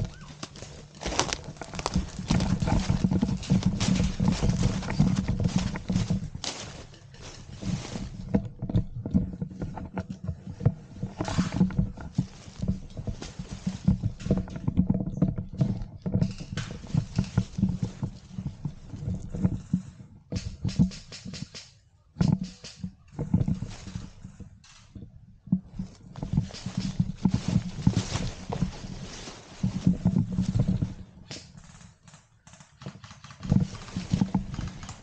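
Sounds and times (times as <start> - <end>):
footsteps in dry leaves: 0.0 - 8.4, 11.1 - 14.5, 25.7 - 31.1, 33.4 - 35.0
microphone handling rumble: 0.0 - 21.4, 22.2 - 31.6, 33.4 - 35.0
gear knocking against camera: 0.0 - 35.0.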